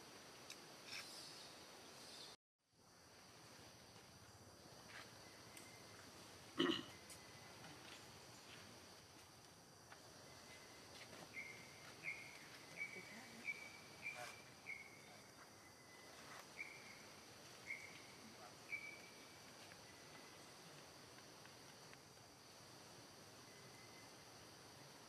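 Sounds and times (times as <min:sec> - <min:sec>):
high insect drone: 0:02.8 - 0:25.0.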